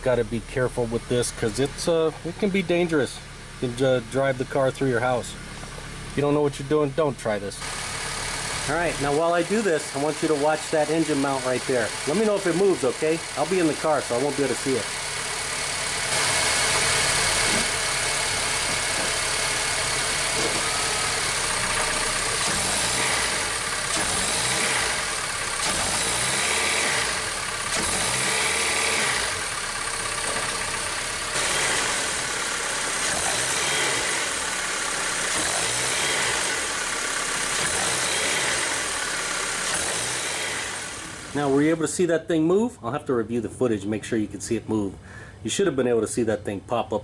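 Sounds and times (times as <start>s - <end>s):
car engine revving: 7.6s - 41.6s.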